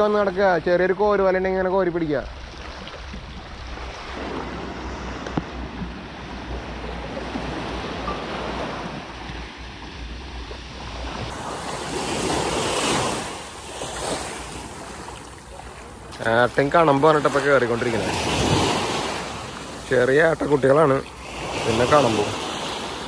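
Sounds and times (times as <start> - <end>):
waves washing on a beach: 0.0 - 23.0
wind rumbling on microphone: 1.0 - 16.5.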